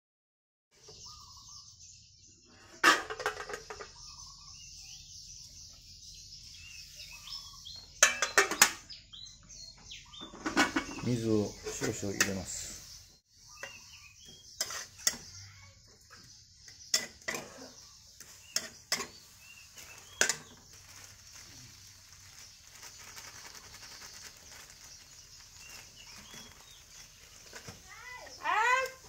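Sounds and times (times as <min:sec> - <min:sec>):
curry paste sizzling: 0:13.7 - 0:15.3, 0:16.9 - 0:29.0
metal ladle scraping a wok: 0:14.6 - 0:15.3, 0:16.9 - 0:20.6.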